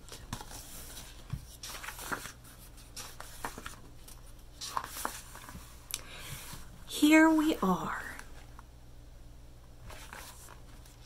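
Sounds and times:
book rustling and clicking: 0:00.0 - 0:05.7, 0:09.9 - 0:11.0.

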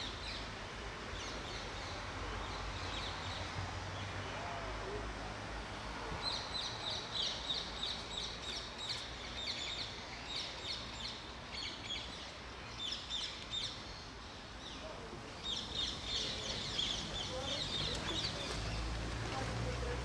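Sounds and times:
small birds chirping: 0:06.2 - 0:20.0.

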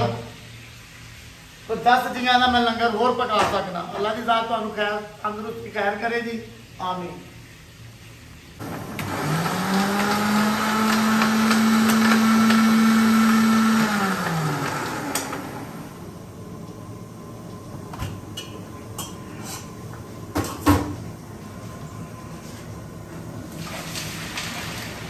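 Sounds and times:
blender motor running: 0:08.6 - 0:16.1.

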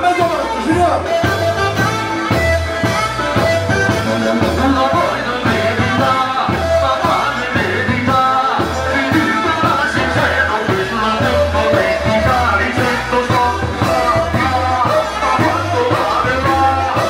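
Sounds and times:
live music with bass beat: 0:00.0 - 0:17.0
person singing: 0:03.8 - 0:17.0.

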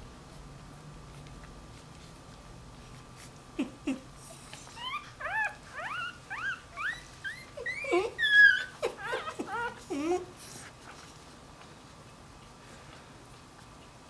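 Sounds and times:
puppy whining: 0:03.5 - 0:11.3.

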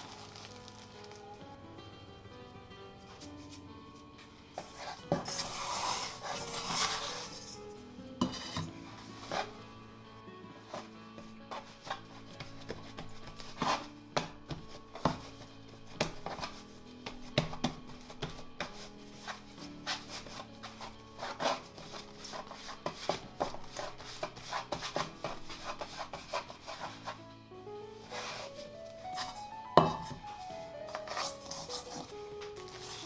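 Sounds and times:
background music: 0:00.0 - 0:33.0
dough knocks and scraping: 0:04.6 - 0:07.6, 0:08.2 - 0:09.6, 0:10.7 - 0:27.2, 0:28.0 - 0:33.0.

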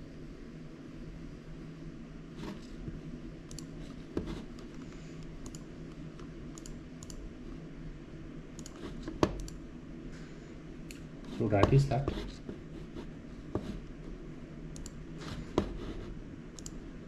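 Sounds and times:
low steady hum: 0:00.0 - 0:17.0
computer keyboard clicks: 0:03.5 - 0:03.7, 0:04.7 - 0:05.7, 0:06.5 - 0:07.2, 0:08.6 - 0:09.6, 0:16.6 - 0:16.8.

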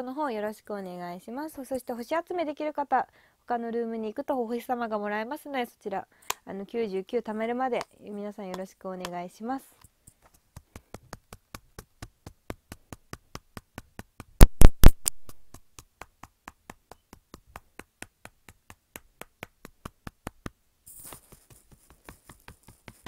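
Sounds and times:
rapid light tapping: 0:09.8 - 0:23.0.

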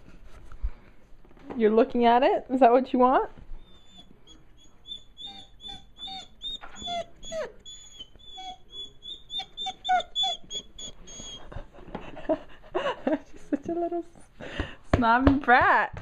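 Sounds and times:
puppy whining: 0:03.6 - 0:11.9.

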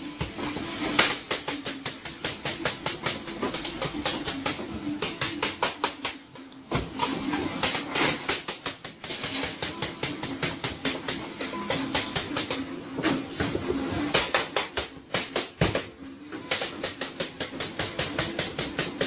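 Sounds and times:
dough cutters striking steel table: 0:14.0 - 0:19.0.

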